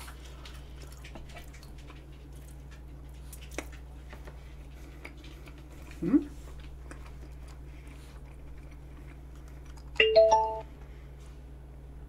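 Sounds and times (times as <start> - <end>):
soft chewing: 0.0 - 10.1
steady low hum: 0.0 - 12.0.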